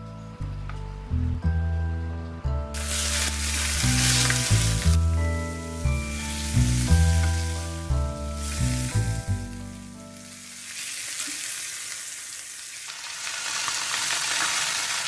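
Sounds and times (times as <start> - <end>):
background music: 0.0 - 11.2
pork frying in a pan: 2.8 - 15.0.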